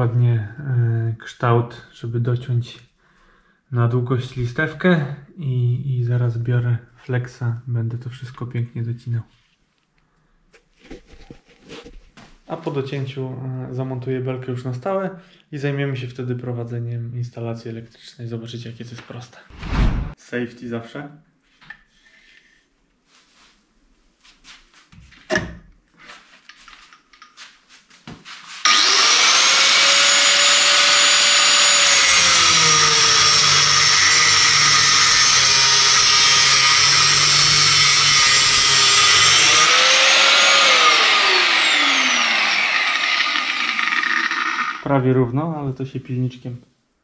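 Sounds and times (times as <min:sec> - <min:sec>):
angle grinder cutting metal: 0:28.6 - 0:44.9.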